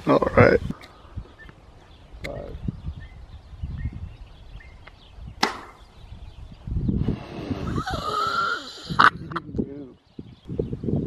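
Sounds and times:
sharp gunshot: 5.4s - 5.8s.

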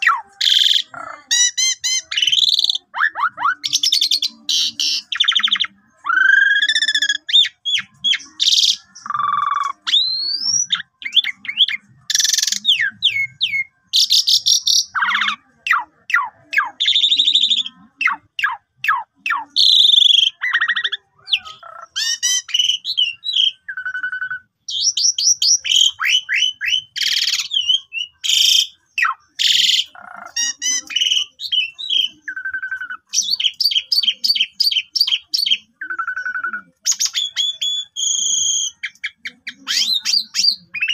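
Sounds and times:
starling singing varied song: 0.0s - 40.9s.

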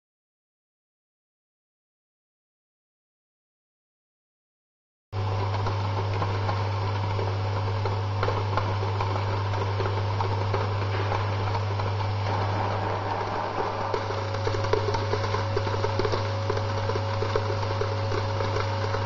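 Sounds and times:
electromagnetic hum: 5.2s - 19.0s.

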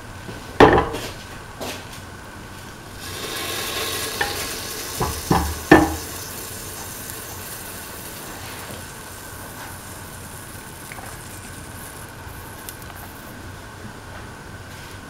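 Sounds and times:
cooking oil sizzling in a pan: 2.8s - 13.2s
metal knocks from a pan: 5.0s - 6.0s.

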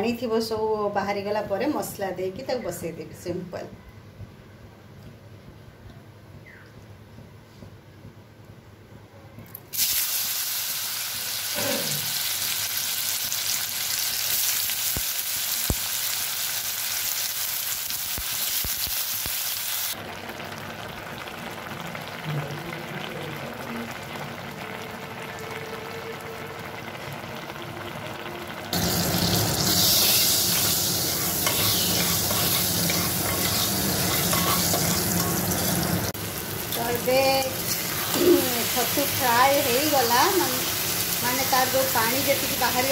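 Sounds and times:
mushrooms sizzling in hot oil: 9.7s - 22.2s, 28.7s - 42.9s
spices sizzling in oil: 9.7s - 22.2s, 26.8s - 42.9s.

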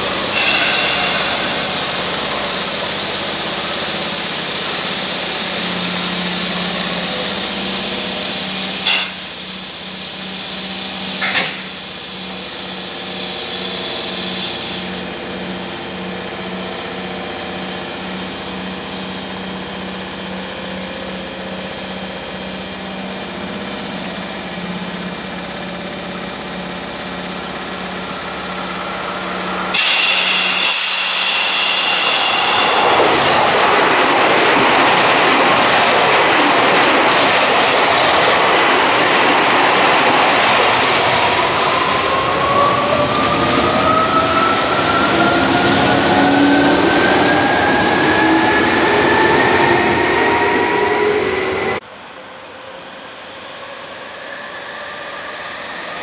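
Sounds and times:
rising whine: 0.0s - 4.6s
train wheels rumbling on rails: 0.0s - 51.8s
electric train passing with hum: 0.0s - 56.0s.

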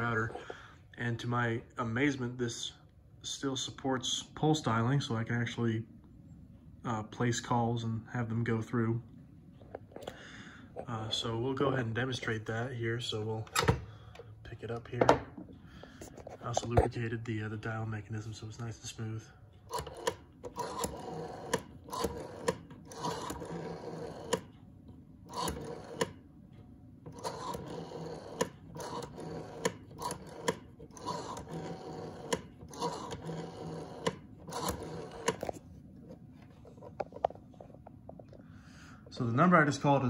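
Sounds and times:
rotary phone dial whirring and clicking: 19.5s - 37.7s.

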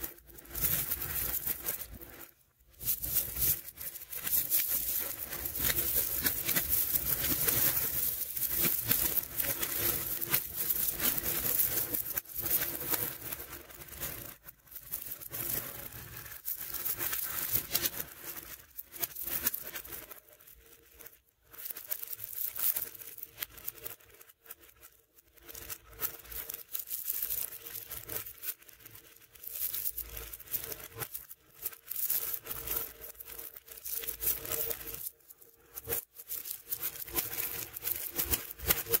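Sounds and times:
magnet balls clicking and rattling: 0.0s - 20.2s, 21.0s - 24.0s, 25.4s - 39.0s.

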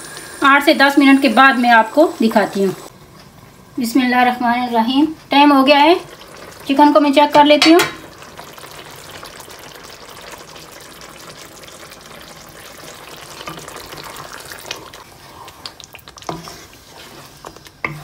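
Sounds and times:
food sizzling in a frying pan: 0.0s - 2.9s, 4.8s - 18.0s
wooden spatula scraping a pan: 13.4s - 18.0s.

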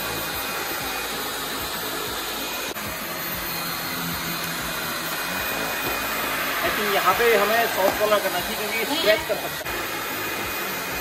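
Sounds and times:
stick vacuum running on carpet: 0.0s - 11.0s.

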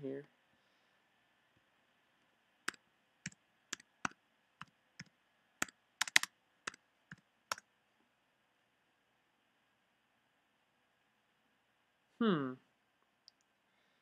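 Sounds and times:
keyboard keystrokes: 5.0s - 6.3s.

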